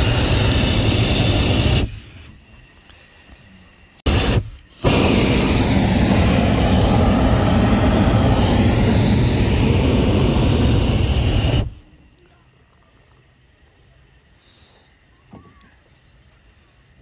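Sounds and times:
propane burner firing: 0:00.0 - 0:02.3, 0:04.0 - 0:11.9.

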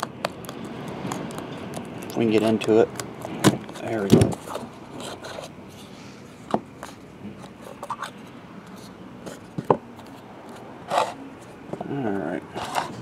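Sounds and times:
cardboard scraping and rubbing: 0:03.2 - 0:06.0, 0:10.9 - 0:11.6, 0:12.5 - 0:13.0.

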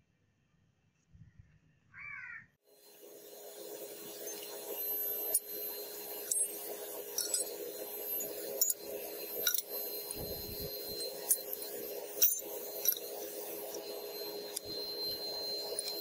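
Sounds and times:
metal fittings clinking: 0:06.1 - 0:16.0.

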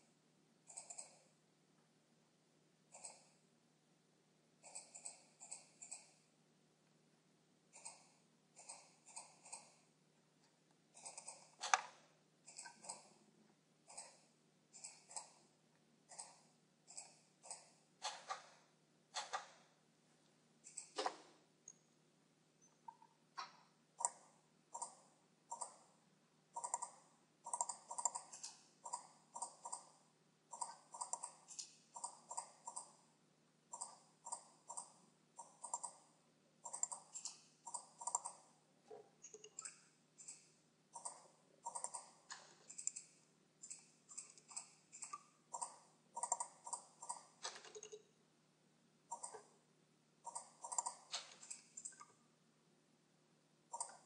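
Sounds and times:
computer mouse clicking: 0:00.7 - 0:01.3, 0:02.9 - 0:03.4, 0:04.6 - 0:06.2, 0:07.7 - 0:09.9, 0:11.0 - 0:13.2, 0:13.8 - 0:15.4, 0:16.1 - 0:18.6, 0:19.2 - 0:19.6, 0:20.6 - 0:21.3, 0:22.8 - 0:25.9, 0:26.6 - 0:33.0, 0:33.7 - 0:38.6, 0:39.2 - 0:48.1, 0:49.1 - 0:49.6, 0:50.2 - 0:52.2, 0:53.7 - 0:54.0.

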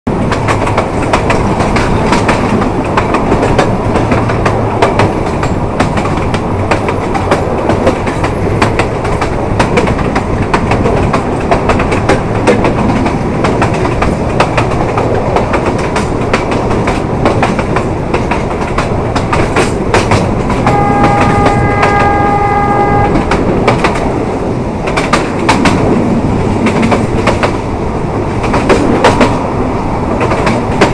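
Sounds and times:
train rumble: 0:00.1 - 0:30.9
wheels clacking over rail joints: 0:00.1 - 0:30.9
locomotive horn blast: 0:20.6 - 0:23.4.

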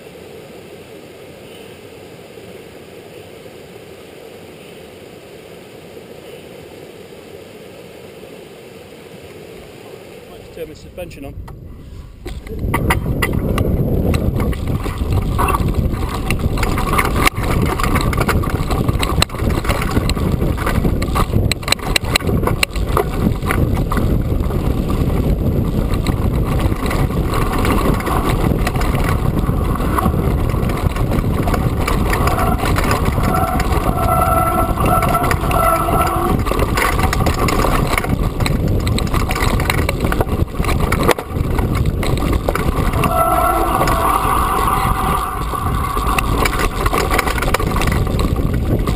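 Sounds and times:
wind rumble on microphone: 0:10.3 - 0:48.9
bike rattling over bumps: 0:11.4 - 0:48.9
steady whine: 0:27.2 - 0:37.8, 0:42.4 - 0:48.8.

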